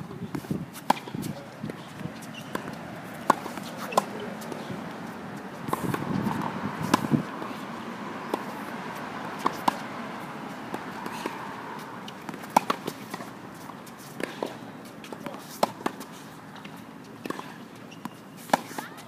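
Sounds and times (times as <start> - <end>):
footsteps on court: 0.3 - 7.6
tennis ball hit by racket: 0.3 - 7.6, 9.3 - 19.0.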